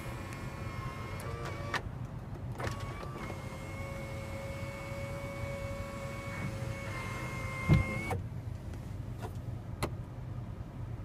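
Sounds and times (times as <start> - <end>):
moonroof motor whining: 2.6 - 8.2.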